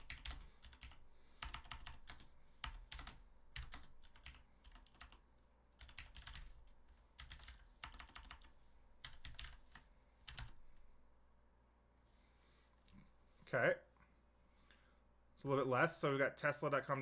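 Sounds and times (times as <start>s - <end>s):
faint keyboard typing: 0.0s - 10.9s.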